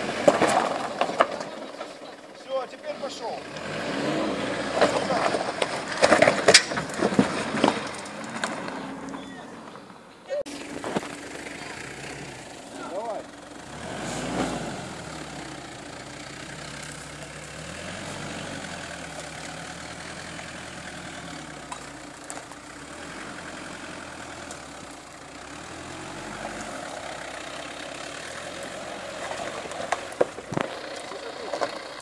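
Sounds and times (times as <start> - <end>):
car engine running at low revs: 10.5 - 32.0.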